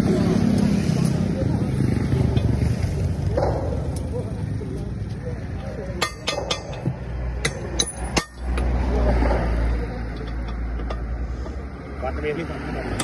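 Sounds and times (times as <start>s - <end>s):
metal clinks on wheel rim: 5.6s - 8.8s, 10.1s - 11.2s.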